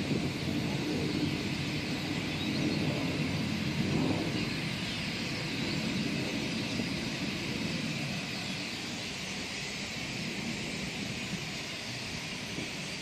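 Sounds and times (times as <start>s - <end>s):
flock of birds chirping: 0.0s - 13.0s.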